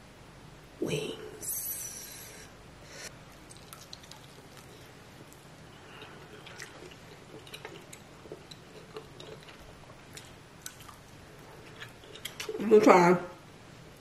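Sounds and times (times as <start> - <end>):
wet chewing: 3.5 - 12.6.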